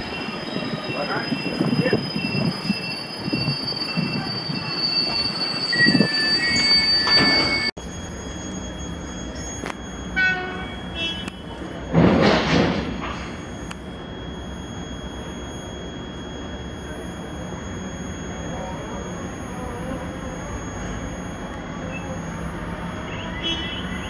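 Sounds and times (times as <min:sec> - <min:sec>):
train wheel squeal: 0:00.0 - 0:10.9
high tones: 0:00.0 - 0:12.0, 0:13.0 - 0:24.0
thin high whine: 0:13.0 - 0:23.2.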